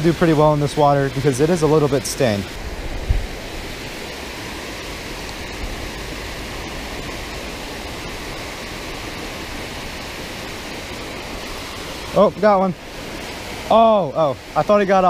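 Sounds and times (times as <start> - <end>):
water rushing over spillway: 0.0 - 15.0.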